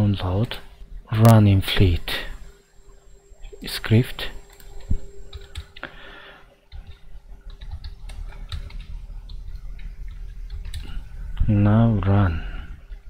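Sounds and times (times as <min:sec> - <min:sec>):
typing on computer keyboard: 0:06.7 - 0:11.0.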